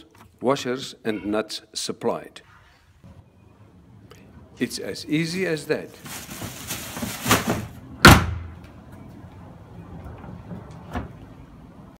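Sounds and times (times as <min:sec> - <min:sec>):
plastic bin bag rustling: 0:05.8 - 0:07.8
bin lid slamming shut: 0:07.2 - 0:08.5.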